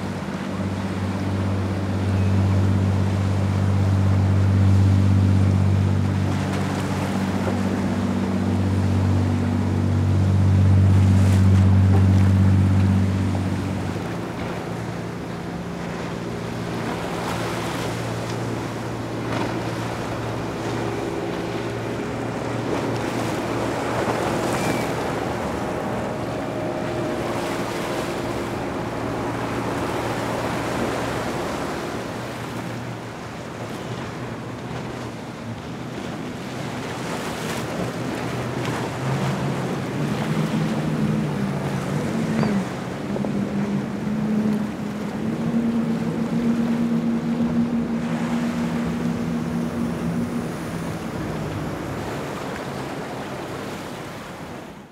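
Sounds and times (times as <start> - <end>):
motorboat engine droning: 0.0 - 54.9
waves washing: 0.0 - 54.9
wind on microphone: 16.7 - 33.1, 36.8 - 54.8.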